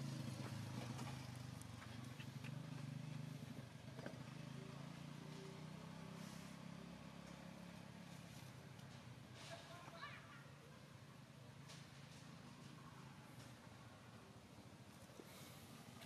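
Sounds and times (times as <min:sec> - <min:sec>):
vehicle engine humming: 0:00.0 - 0:09.3.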